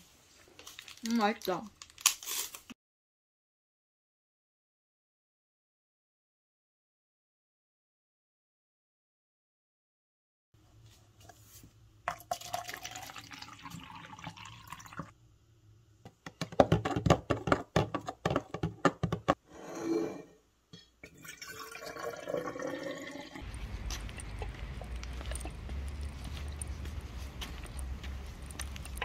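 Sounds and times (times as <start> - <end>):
liquid pouring into plastic cup: 12.1 - 15.1, 21.0 - 23.4
steady low rumble: 23.4 - 29.0.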